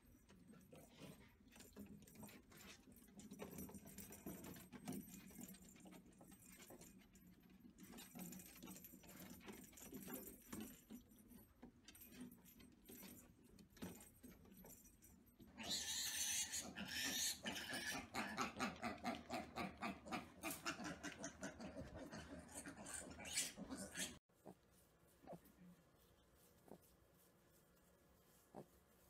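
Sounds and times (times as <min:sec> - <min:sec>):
piglets grunting: 0:15.6 - 0:24.2.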